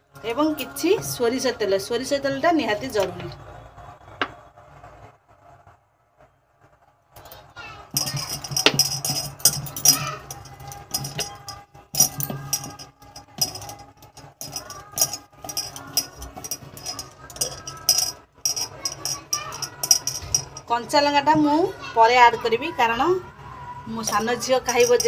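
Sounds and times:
bangles clinking: 0:08.0 - 0:20.9, 0:24.0 - 0:25.0.

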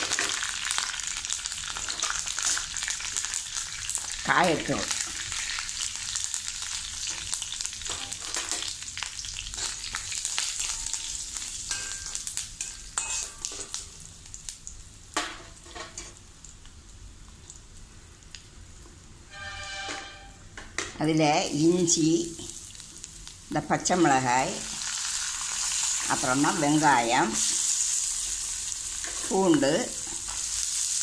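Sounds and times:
oil sizzling in a pan: 0:00.0 - 0:31.0
metal ladle scraping a pan: 0:11.7 - 0:13.7, 0:19.3 - 0:20.4.

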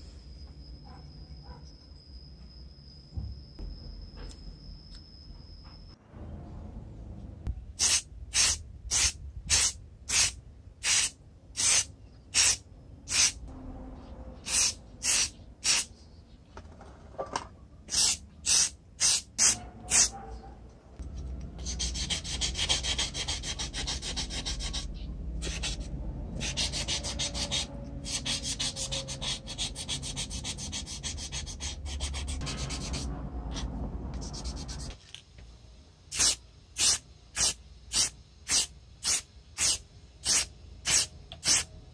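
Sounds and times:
aerosol spray can hissing: 0:07.8 - 0:13.4, 0:14.5 - 0:15.9, 0:17.9 - 0:20.1, 0:36.1 - 0:41.7
metal part rubbed by hand: 0:21.6 - 0:35.0.

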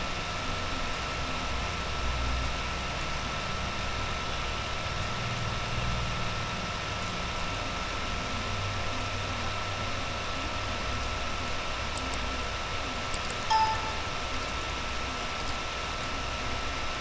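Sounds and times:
high whine: 0:13.5 - 0:14.5.

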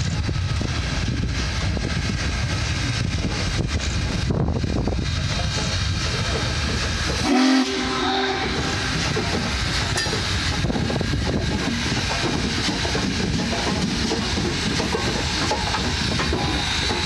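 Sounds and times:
train wheels rumbling on rails: 0:00.0 - 0:17.0
steam locomotive whistle blast: 0:07.2 - 0:09.2.

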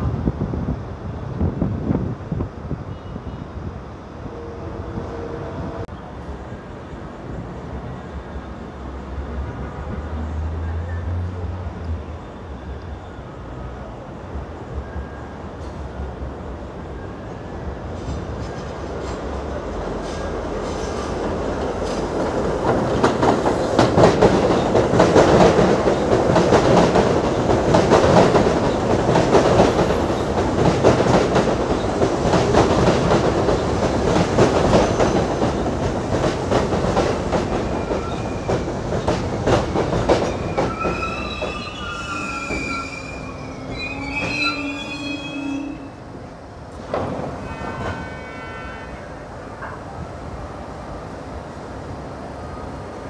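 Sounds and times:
subway train wheels clacking: 0:00.0 - 0:53.0
train rumble: 0:00.0 - 0:53.0
wheel flanges squealing: 0:40.2 - 0:46.0.

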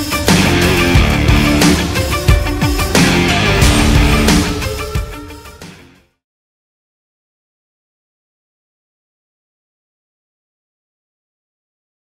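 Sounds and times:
heavy metal rock music: 0:00.0 - 0:06.1.

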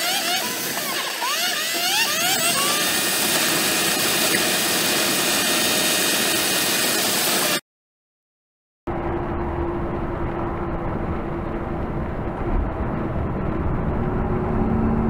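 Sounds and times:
jet engine hissing roar: 0:00.0 - 0:07.6.

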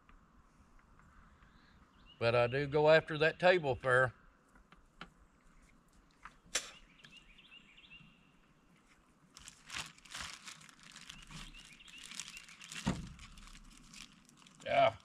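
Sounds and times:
bird chirping: 0:01.0 - 0:04.3, 0:06.3 - 0:08.7, 0:10.9 - 0:13.4
hands rustling and crinkling: 0:08.7 - 0:15.0.

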